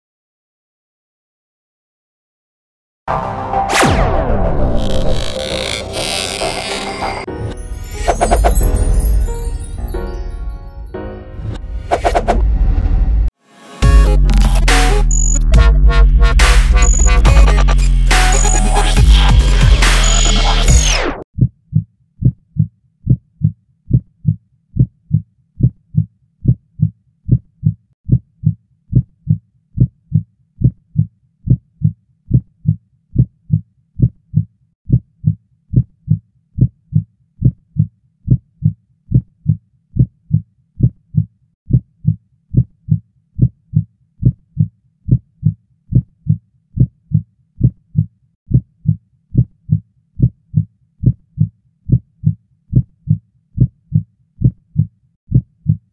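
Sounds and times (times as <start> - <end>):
heartbeat thumps: 21.4 - 26.6, 29.8 - 33.3, 39.1 - 47.8, 48.5 - 55.8.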